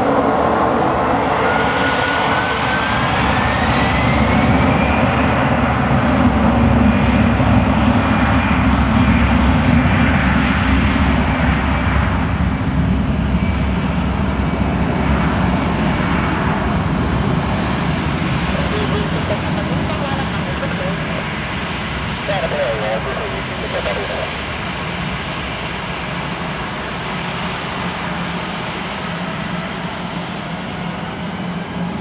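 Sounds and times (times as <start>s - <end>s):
jet engines at takeoff power: 0.0s - 32.0s.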